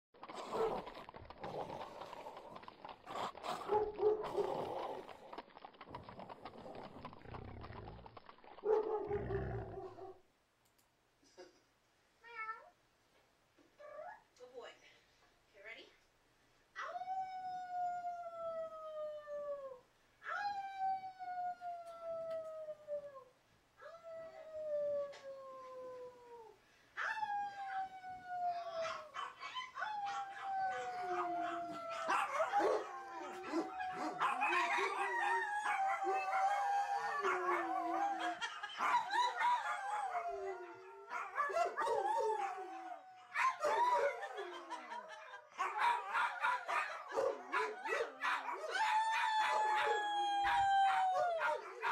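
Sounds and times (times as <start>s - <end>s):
dogs howling: 27.1s - 51.9s.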